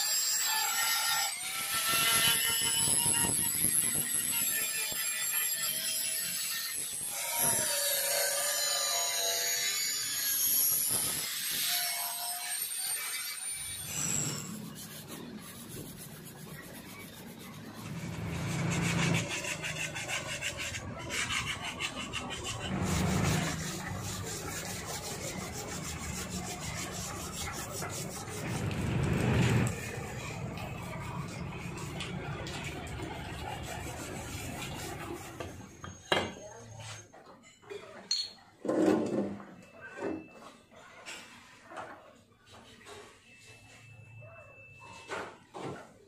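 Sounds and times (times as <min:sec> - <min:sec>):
angle grinder cutting steel: 0:00.0 - 0:35.8
hand scrubbing wet surface: 0:14.4 - 0:35.4.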